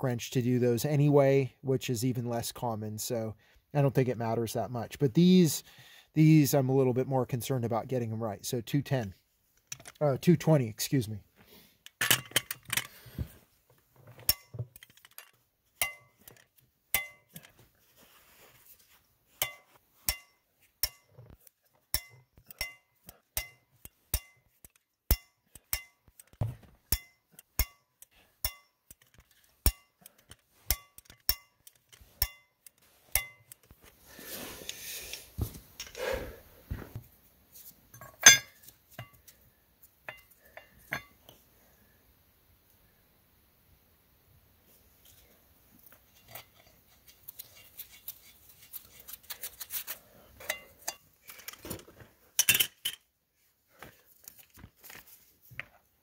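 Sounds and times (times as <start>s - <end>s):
metal clink: 14.2s - 17.6s, 19.4s - 21.2s, 21.9s - 26.3s, 26.9s - 33.7s, 37.9s - 39.2s, 40.1s - 41.3s, 50.4s - 51.1s
rustling: 17.3s - 21.9s.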